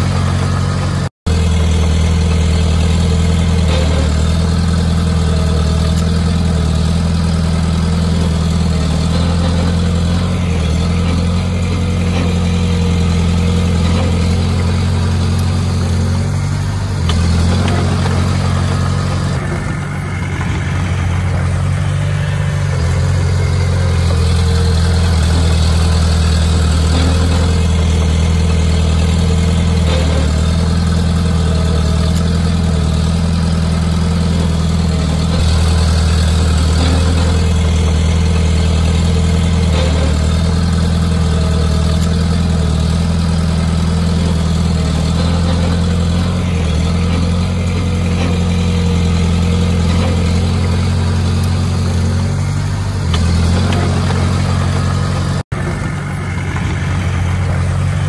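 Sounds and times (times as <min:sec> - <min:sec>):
heavy machinery diesel engine: 0:00.0 - 0:58.0.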